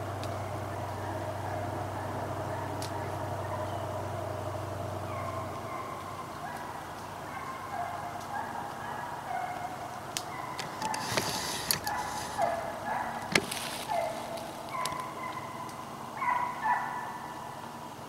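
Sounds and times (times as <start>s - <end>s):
brushy rustle: 0.0s - 17.0s
hounds baying: 0.0s - 17.8s
sharp snaps: 2.8s - 3.0s, 10.1s - 11.1s.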